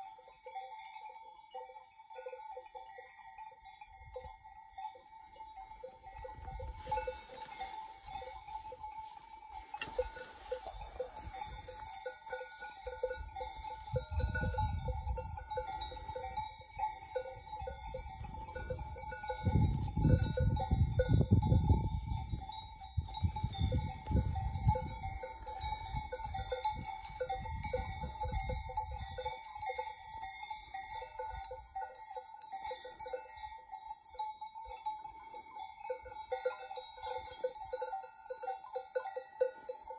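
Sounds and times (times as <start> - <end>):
livestock bells clinking: 0.0 - 39.9
wind rumble on microphone: 6.1 - 8.6, 13.0 - 29.3.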